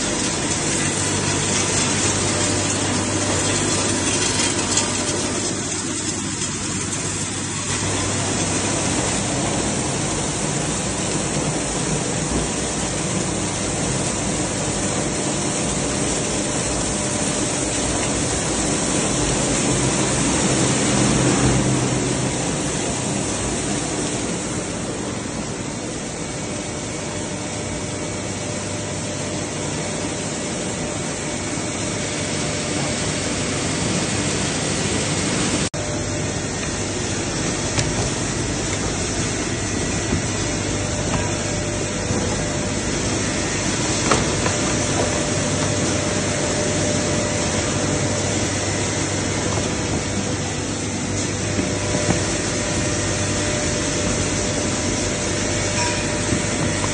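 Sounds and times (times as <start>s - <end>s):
plastic shredder grinding: 0.0s - 22.0s
low machine hum: 0.0s - 56.9s.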